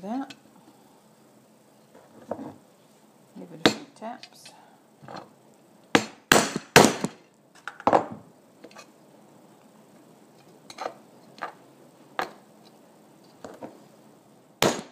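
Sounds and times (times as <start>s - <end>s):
metal tool striking on wood: 5.9s - 7.1s, 14.6s - 14.9s.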